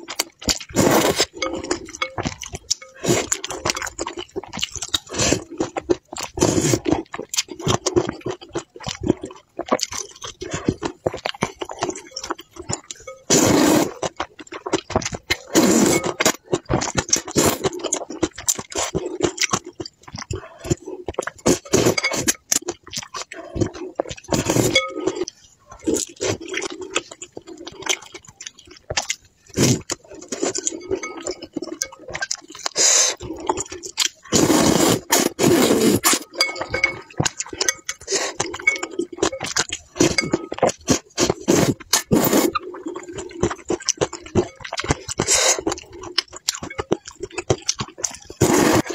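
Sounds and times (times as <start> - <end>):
slurping and chewing noodles: 0.0 - 48.9
chopsticks clinking on bowl: 36.4 - 40.7.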